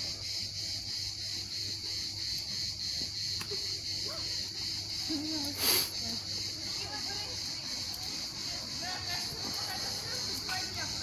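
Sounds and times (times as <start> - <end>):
insect chorus: 0.0 - 11.0
faint distant voices: 3.8 - 11.0.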